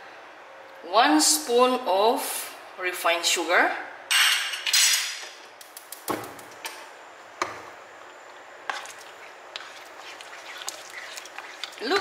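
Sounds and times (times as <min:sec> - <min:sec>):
spatula stirring thick sauce: 0:08.1 - 0:12.0.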